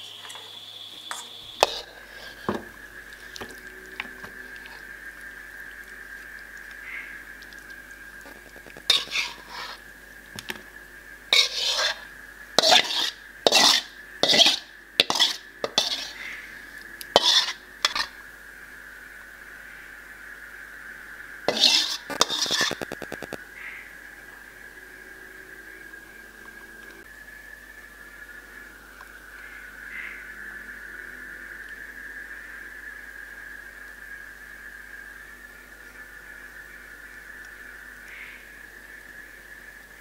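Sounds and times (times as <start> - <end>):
faint steady high tone: 0.0 - 18.3, 22.7 - 34.7
metal spatula scraping a wok: 1.1 - 4.8, 8.3 - 9.8, 11.3 - 16.5, 17.1 - 18.2, 21.5 - 23.3.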